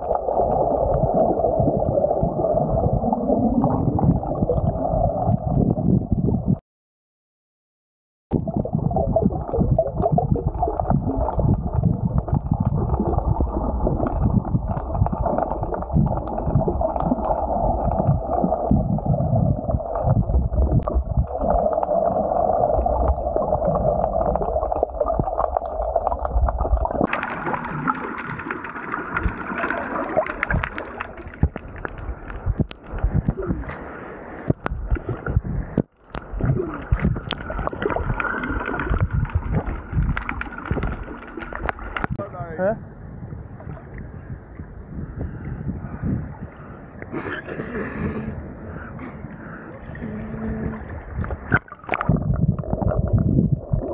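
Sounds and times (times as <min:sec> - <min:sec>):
water splashing: 0:00.0 - 0:05.5, 0:08.4 - 0:42.8, 0:47.5 - 0:53.9
underwater rumbling and gurgling: 0:00.0 - 0:06.6, 0:08.3 - 0:53.9.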